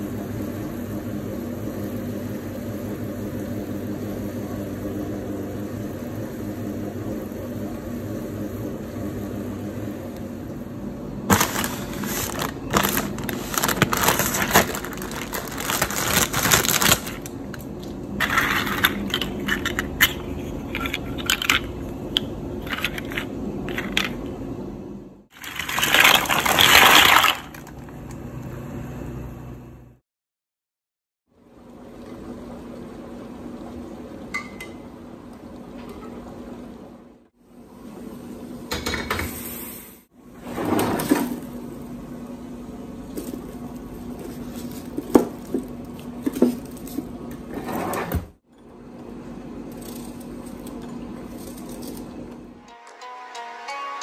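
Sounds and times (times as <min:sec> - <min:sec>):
dried pasta rattling: 0:11.3 - 0:17.3, 0:25.4 - 0:27.7
plastic bag crinkling: 0:11.3 - 0:17.5, 0:25.4 - 0:27.8.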